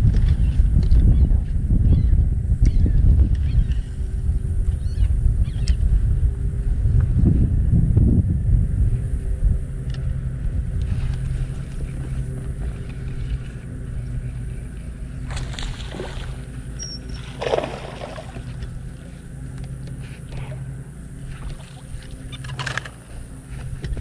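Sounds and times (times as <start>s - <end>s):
steady low hum: 0.0s - 24.0s
wind: 0.0s - 24.0s
fish splashing in water: 15.2s - 18.6s.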